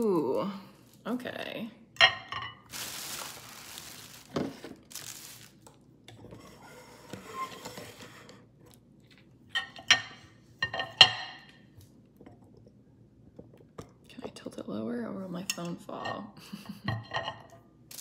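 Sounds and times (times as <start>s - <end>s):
ceramic dishes clinking: 15.5s - 17.6s.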